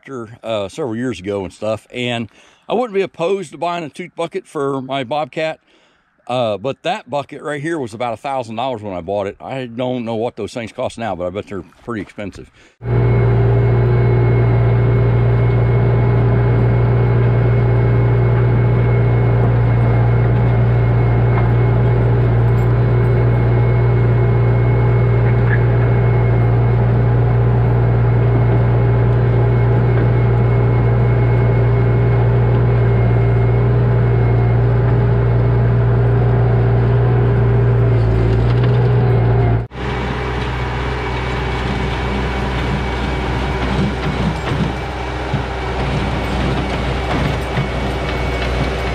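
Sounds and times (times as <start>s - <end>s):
rough machine sound: 12.7s - 48.9s
diesel engine running: 12.8s - 48.9s.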